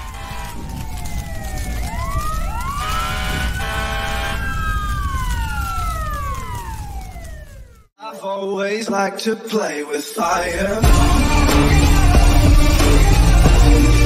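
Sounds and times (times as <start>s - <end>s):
horn blasts: 0.0s - 0.7s, 2.8s - 4.6s
emergency sirens wailing: 0.0s - 7.9s, 10.4s - 14.0s.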